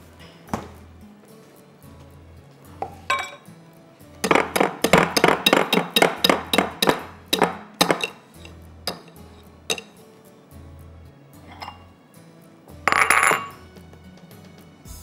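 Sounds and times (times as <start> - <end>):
background music: 0.0 - 15.0
utensil clinking against a bowl: 2.8 - 3.5, 4.2 - 10.0, 11.5 - 11.9, 12.9 - 13.6.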